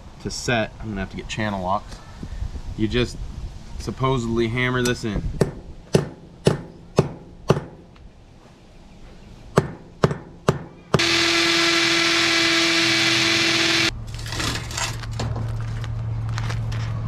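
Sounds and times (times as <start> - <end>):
electric drill running: 11.0 - 13.9.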